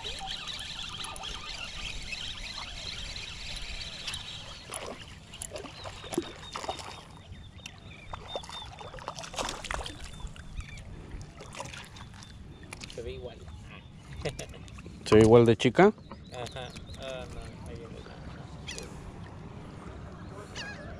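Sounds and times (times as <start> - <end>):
fish splashing in water: 3.9 - 7.2, 8.1 - 13.0.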